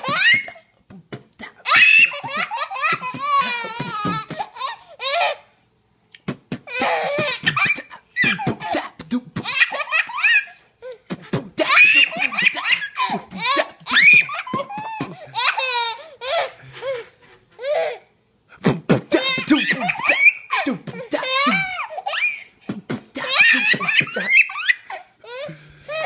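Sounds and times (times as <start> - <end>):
baby laughing: 0.0 - 5.5, 6.2 - 18.1, 18.7 - 26.0.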